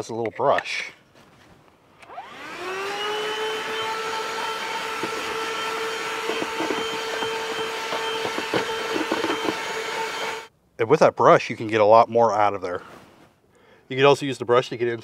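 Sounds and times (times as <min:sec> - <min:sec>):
handheld vacuum motor whine: 0:02.0 - 0:10.5.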